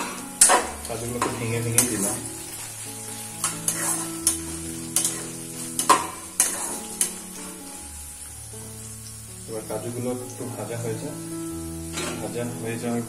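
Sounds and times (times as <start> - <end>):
vegetables sizzling in oil: 0.0 - 13.0
utensil scraping and knocking pan: 3.4 - 7.2.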